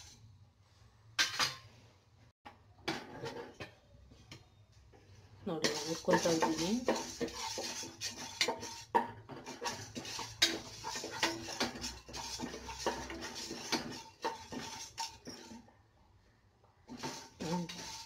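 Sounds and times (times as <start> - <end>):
metal spatula scraping a pot: 0.0 - 0.3, 2.8 - 15.8, 16.8 - 18.0
lentils rattling on metal: 5.6 - 15.4.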